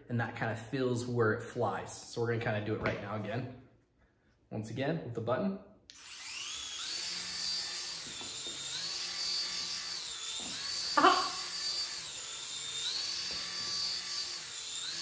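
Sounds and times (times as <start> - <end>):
small propeller motors whining: 5.9 - 15.0
person exclaiming: 10.9 - 11.5.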